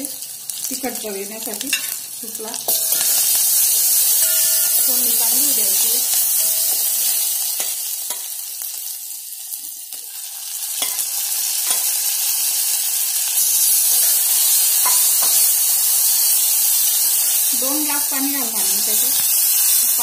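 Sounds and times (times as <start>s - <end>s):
spices sizzling in hot oil: 0.0s - 20.0s
steel spoon scraping a pot: 2.7s - 5.0s.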